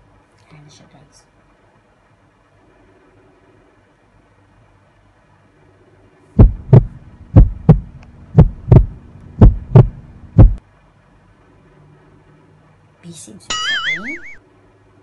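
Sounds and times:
heartbeat thumps: 6.4s - 10.6s.

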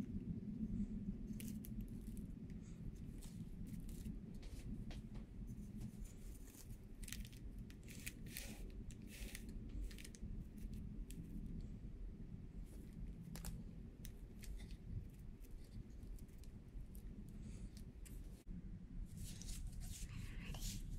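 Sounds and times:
paper rustling and crinkling: 19.2s - 20.8s.

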